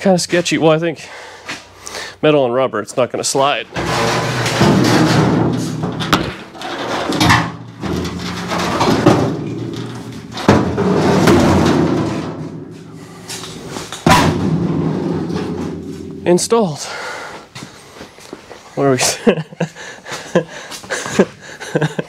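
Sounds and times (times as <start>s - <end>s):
steel floor pan knocking and clanking: 3.7s - 16.6s.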